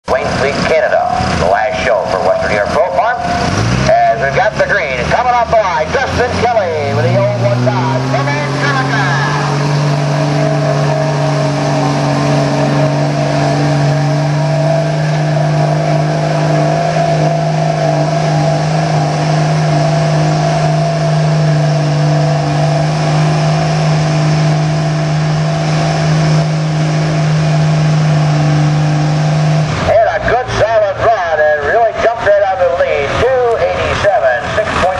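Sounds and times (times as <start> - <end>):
diesel engine at high revs: 0.0 - 34.9.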